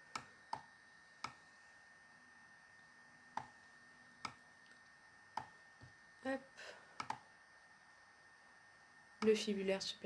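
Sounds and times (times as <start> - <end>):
computer mouse clicks: 0.1 - 1.4, 4.2 - 5.5, 7.0 - 7.2.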